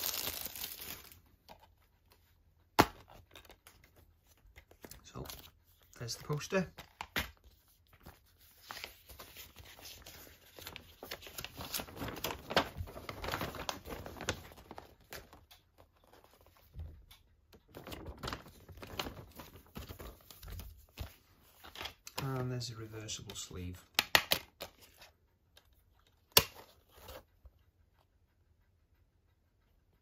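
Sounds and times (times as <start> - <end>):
paper rustling and crinkling: 0.0 - 2.3, 3.0 - 16.9, 17.6 - 22.6.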